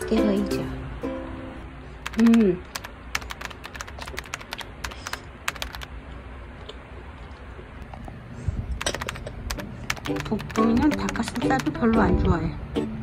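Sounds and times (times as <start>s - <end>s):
keyboard key clicks: 2.0s - 5.9s, 8.8s - 11.8s.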